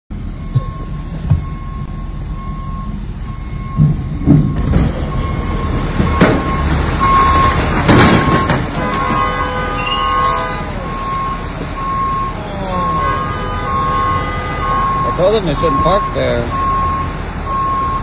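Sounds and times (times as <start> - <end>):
truck trailer scraping car: 3.0 - 16.7
knocks and creaks: 3.6 - 10.0.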